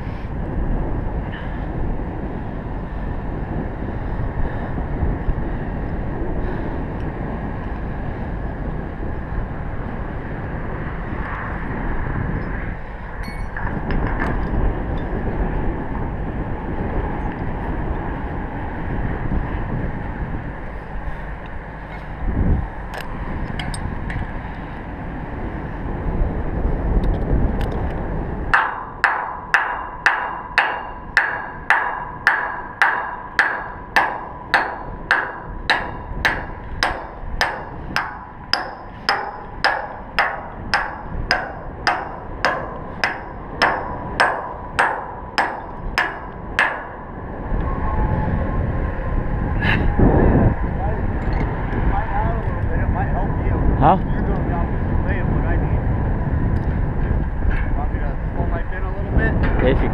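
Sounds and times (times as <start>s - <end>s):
wind rumbling on microphone: 0.0s - 59.9s
hammer blows on steel: 28.5s - 47.8s.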